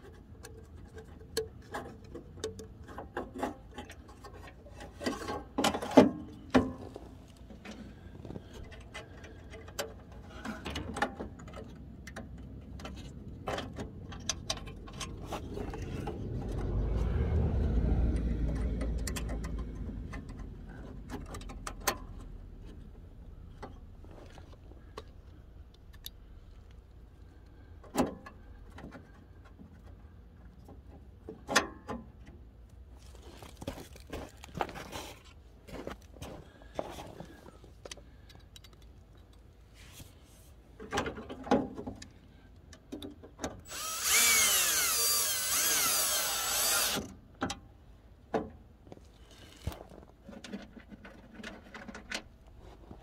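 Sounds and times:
clicks and rattles of fittings: 0:00.0 - 0:06.8, 0:36.7 - 0:39.5, 0:48.4 - 0:52.4.

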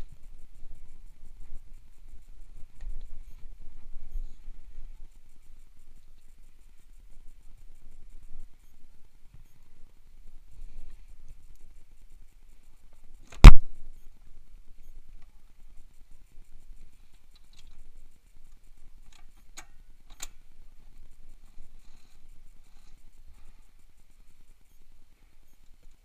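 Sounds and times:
light clicks of tools: 0:14.8 - 0:26.0.

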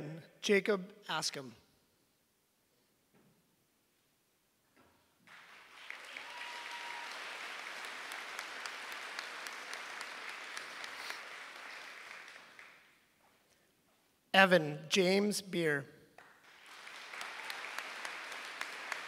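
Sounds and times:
audience applause: 0:05.3 - 0:12.9, 0:16.4 - 0:19.0.

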